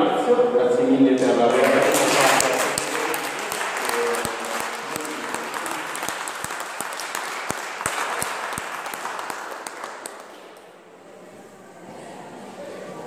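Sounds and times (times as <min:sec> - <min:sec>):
audience applauding: 0:01.5 - 0:10.6.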